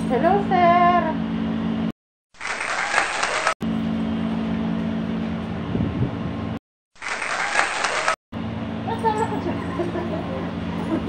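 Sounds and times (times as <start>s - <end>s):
train car mechanical hum: 0.0s - 1.9s, 3.4s - 6.6s, 8.4s - 11.0s.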